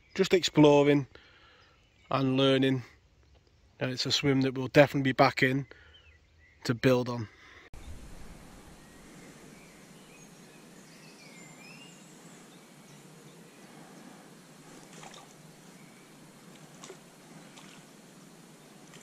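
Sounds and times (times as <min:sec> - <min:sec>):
faint outdoor hiss: 0:00.0 - 0:19.0
small birds chirping: 0:05.2 - 0:19.0.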